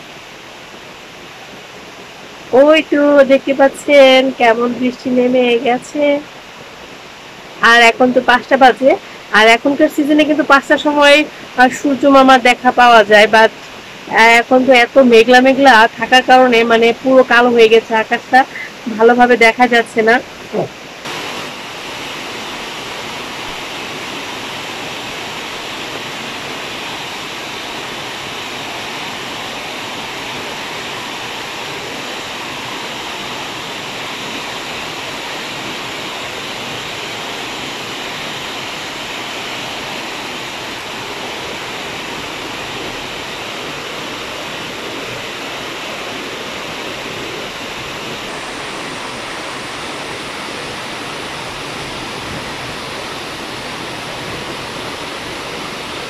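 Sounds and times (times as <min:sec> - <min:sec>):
rain falling on trees: 0:20.3 - 0:56.0.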